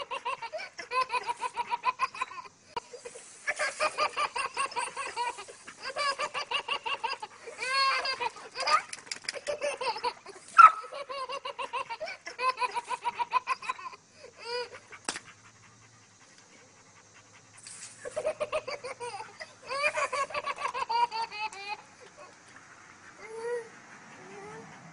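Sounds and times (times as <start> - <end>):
toddler laughing: 0.0 - 14.8, 18.0 - 22.4, 23.2 - 24.7.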